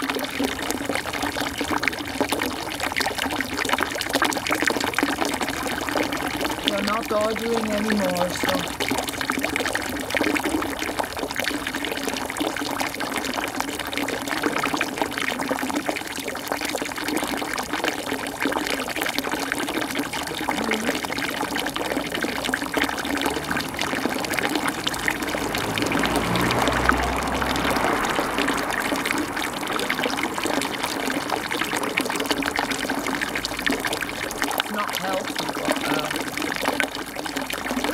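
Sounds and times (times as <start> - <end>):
running water rushing: 0.0 - 37.9
low rumble: 20.0 - 34.4.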